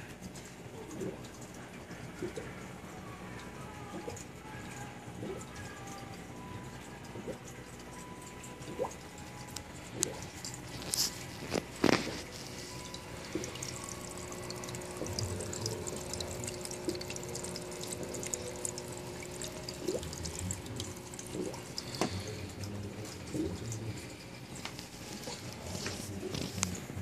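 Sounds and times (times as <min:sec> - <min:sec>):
aquarium water bubbling: 0:00.0 - 0:27.0
faint tank equipment hum: 0:00.0 - 0:27.0
small fine crackles: 0:09.5 - 0:14.8, 0:23.8 - 0:27.0.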